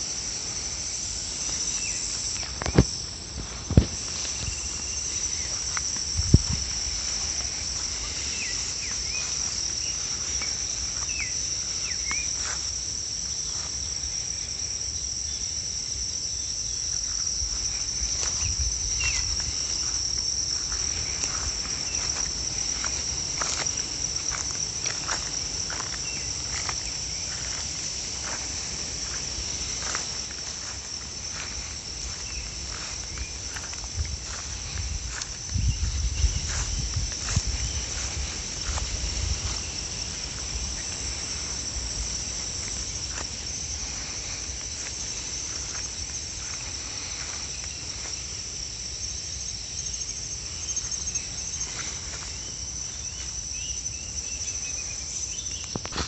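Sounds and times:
footsteps through long grass: 0.0 - 14.5, 16.7 - 54.3, 55.1 - 56.0
insects shrilling: 0.0 - 56.0.

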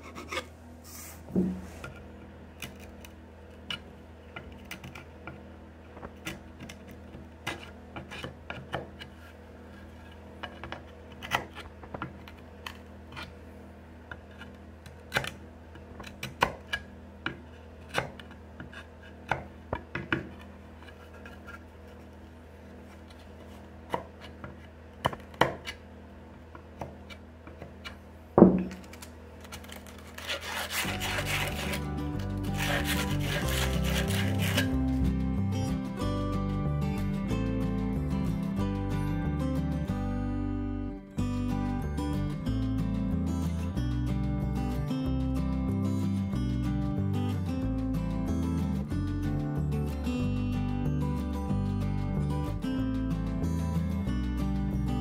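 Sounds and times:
chisel scraping wood: 0.0 - 3.0, 20.2 - 24.6, 29.6 - 35.0
background music: 30.5 - 55.0.

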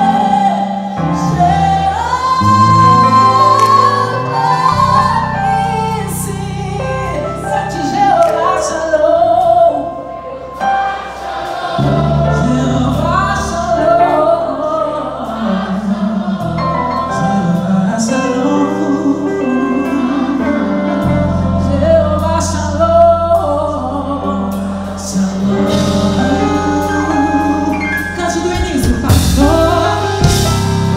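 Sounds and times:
gospel band playing: 0.0 - 30.9
voices singing: 7.4 - 21.6.

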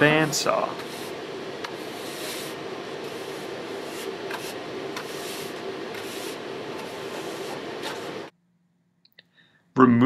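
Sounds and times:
broom scraping concrete floor: 0.0 - 8.3
steady hum with held tone: 0.0 - 9.5.

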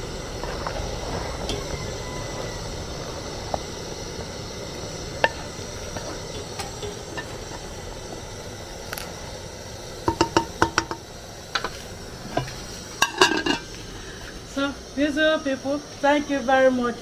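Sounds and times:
steady hiss: 0.0 - 17.0.

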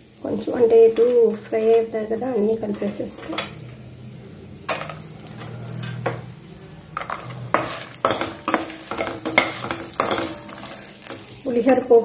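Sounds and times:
food sizzling in hot oil: 0.0 - 12.0
metal skimmer scraping a steel pan: 4.7 - 6.4, 7.0 - 12.0.

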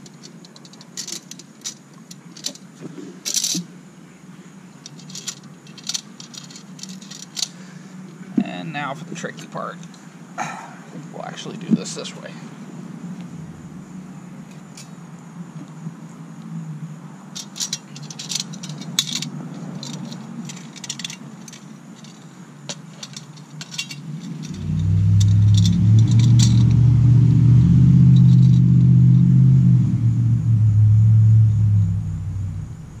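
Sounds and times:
metal ring clinking and rattling: 0.0 - 3.7, 4.8 - 7.5, 17.3 - 27.0, 28.0 - 29.0
loud low engine-like drone: 24.4 - 33.0.

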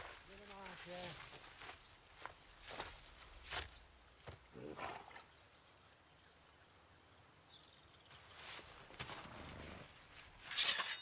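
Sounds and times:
footsteps crunching on dry leaves: 0.0 - 3.8.

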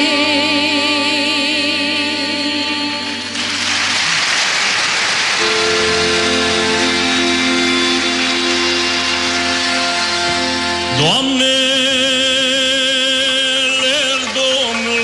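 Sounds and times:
woman singing a long note: 0.0 - 3.6
folk band playing: 2.7 - 15.0.

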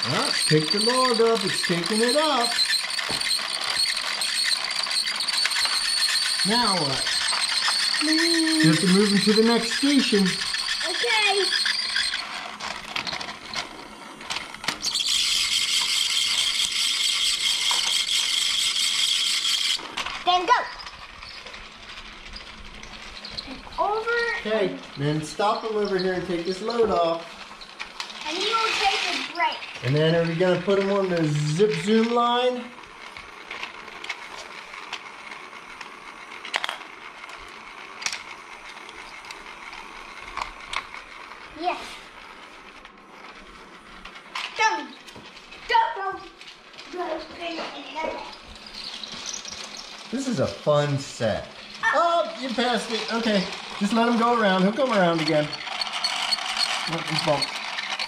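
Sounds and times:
toy motor and gears whirring: 0.0 - 58.0
plastic toy logs clattering: 25.3 - 41.2, 46.1 - 58.0.

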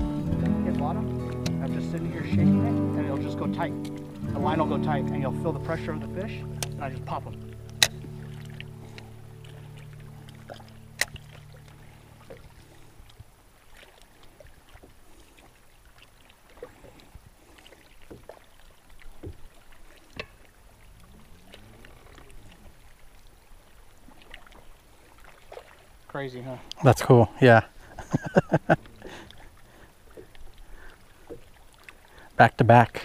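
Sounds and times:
water lapping against boat hull: 0.0 - 33.0
low steady hum: 0.2 - 14.1.

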